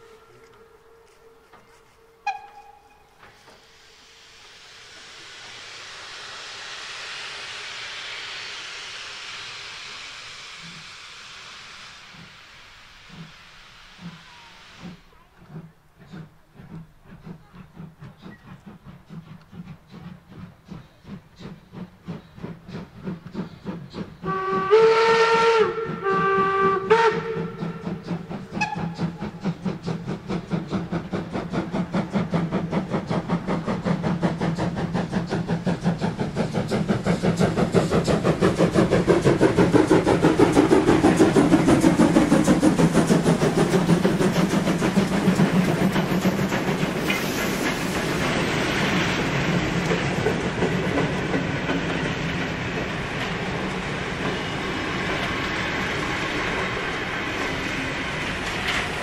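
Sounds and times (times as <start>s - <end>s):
steam locomotive whistle: 0.0s - 3.7s, 24.2s - 29.5s
steam locomotive exhaust chuffs: 0.0s - 59.0s
train wheels clattering on rails: 14.8s - 59.0s.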